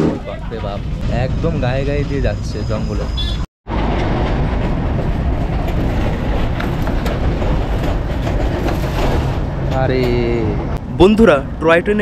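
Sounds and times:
train wheels rumbling and rattling: 0:03.0 - 0:11.6.

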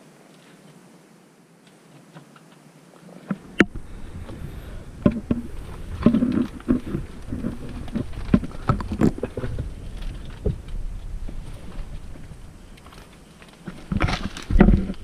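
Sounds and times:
microphone handling rumble: 0:03.3 - 0:15.0
knocks and clicks on rocks: 0:05.0 - 0:15.0.

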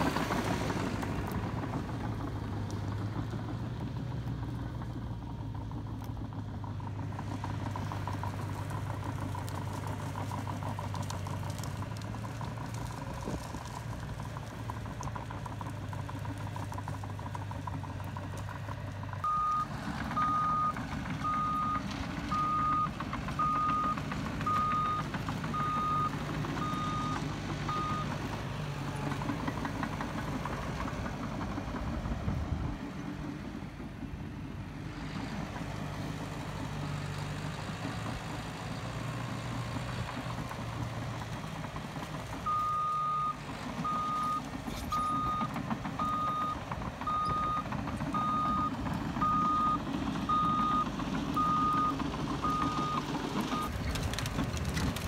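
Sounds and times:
bulldozer diesel engine: 0:00.0 - 0:55.0
reverse alarm beeping: 0:19.2 - 0:28.1, 0:42.5 - 0:44.4, 0:45.0 - 0:53.0.

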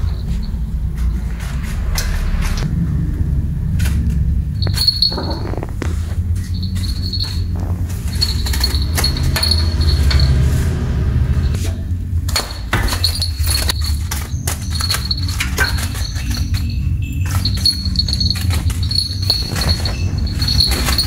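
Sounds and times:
steady low hum: 0:00.0 - 0:21.0
crickets chirping: 0:04.3 - 0:10.4.

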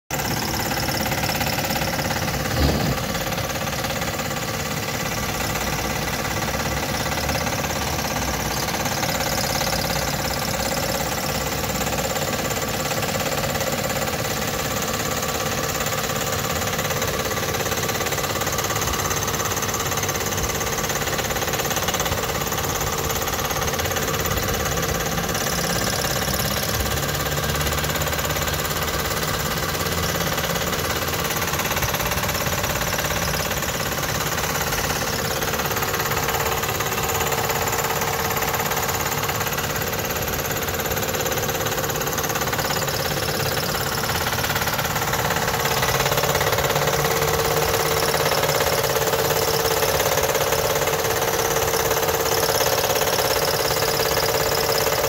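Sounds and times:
car engine idling: 0:00.1 - 0:06.5
drive belt noise: 0:00.1 - 0:55.0.

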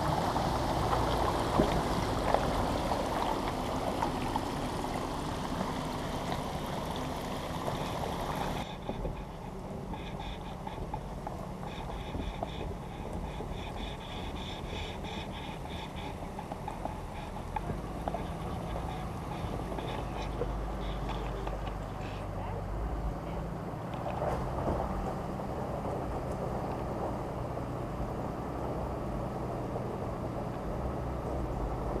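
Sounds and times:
rhythmic pulsing animal call: 0:00.0 - 0:22.2
pickup truck rumble: 0:00.0 - 0:32.0.

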